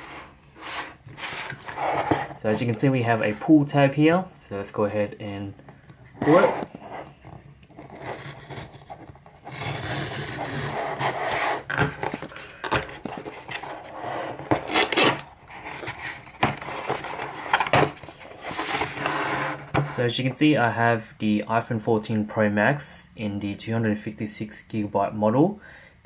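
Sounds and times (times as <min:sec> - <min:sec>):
cardboard flaps scraping and knocking: 0:06.1 - 0:07.9, 0:15.7 - 0:20.0
cardboard tear strip ripping: 0:07.9 - 0:11.6.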